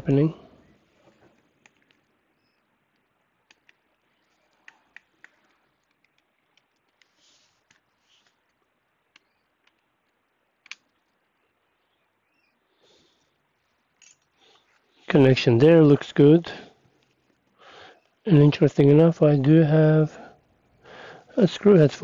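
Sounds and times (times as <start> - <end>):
small clicks and taps on laptop parts: 1.3 - 2.1, 2.9 - 11.2
soft rustles: 3.8 - 8.7.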